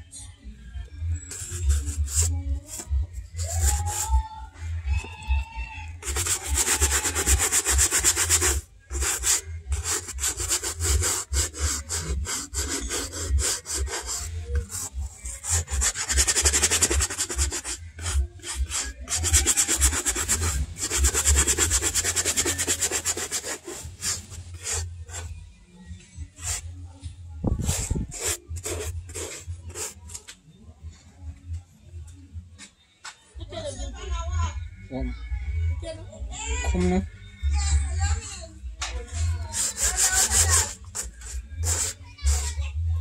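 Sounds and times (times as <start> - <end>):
brush scrubbing suede boot: 1.3 - 4.1, 6.0 - 25.3, 27.6 - 30.0, 39.5 - 42.6.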